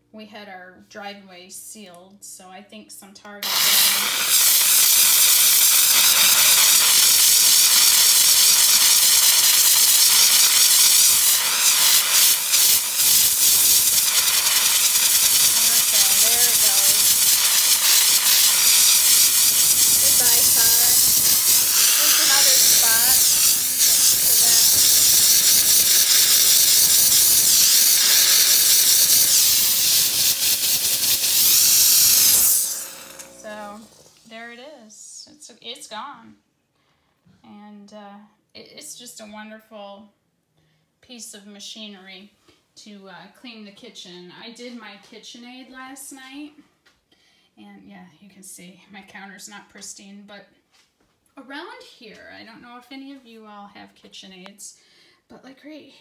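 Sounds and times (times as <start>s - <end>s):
steam cleaner hissing: 3.4s - 34.4s.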